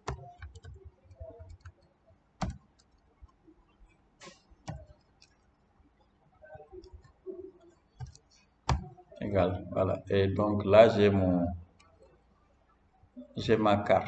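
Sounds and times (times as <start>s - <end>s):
keyboard keystrokes and clicks: 0.0s - 3.4s, 4.2s - 5.4s, 6.7s - 8.9s.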